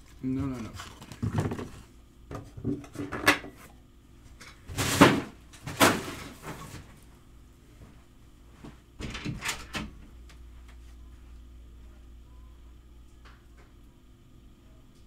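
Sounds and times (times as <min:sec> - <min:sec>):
hard objects knocking and clattering: 0:00.7 - 0:03.6.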